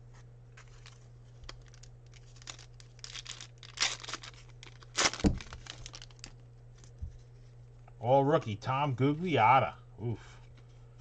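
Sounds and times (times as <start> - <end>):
foil wrapper tearing and crinkling: 0.6 - 6.9.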